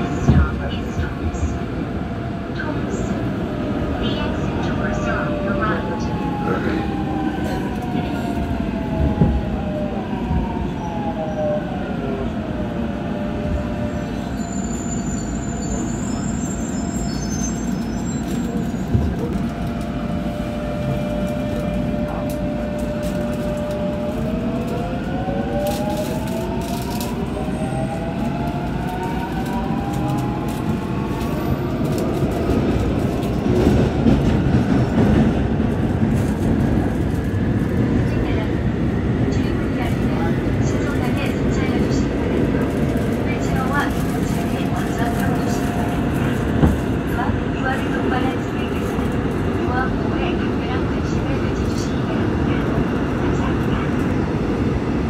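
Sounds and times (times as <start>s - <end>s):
wheels rumbling on track: 0.0s - 55.0s.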